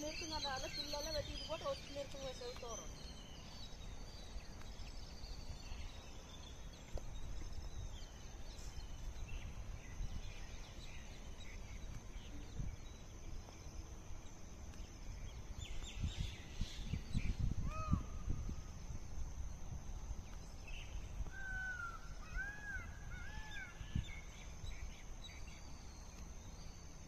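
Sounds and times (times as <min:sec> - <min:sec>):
birds chirping and calling: 0:00.0 - 0:13.4.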